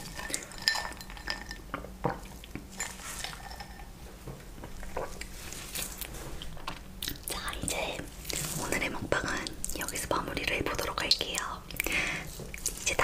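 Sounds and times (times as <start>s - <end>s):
straw clinking in glass: 0.1s - 1.6s.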